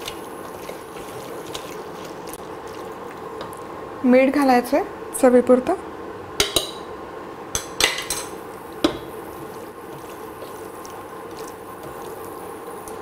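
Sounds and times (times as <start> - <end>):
spatula scraping meat in pot: 0.0 - 3.0, 8.7 - 12.5
steady hum: 0.0 - 13.0
spatula knocking against pot: 6.4 - 6.8, 7.6 - 9.1.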